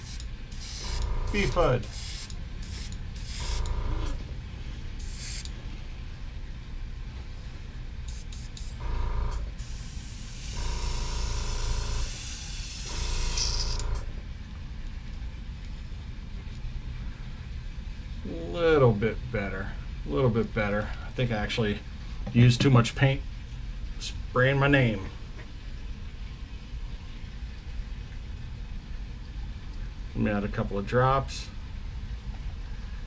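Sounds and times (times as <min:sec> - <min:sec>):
airbrush spraying hiss: 0:00.0 - 0:03.7, 0:05.0 - 0:05.5, 0:08.1 - 0:08.8, 0:09.6 - 0:13.8
steady low hum: 0:00.0 - 0:33.0.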